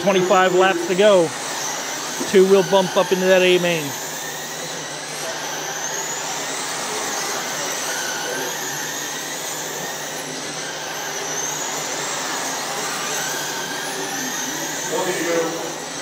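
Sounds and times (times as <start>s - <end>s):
motor whines sliding in pitch: 0.0s - 16.0s
rc car electric motors whirring: 0.0s - 16.0s.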